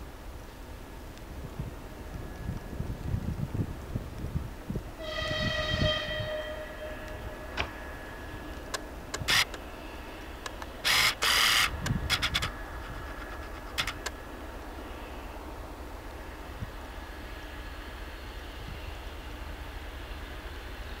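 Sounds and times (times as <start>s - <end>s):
low rumble of train: 0.0s - 21.0s
locomotive horn: 5.0s - 8.6s.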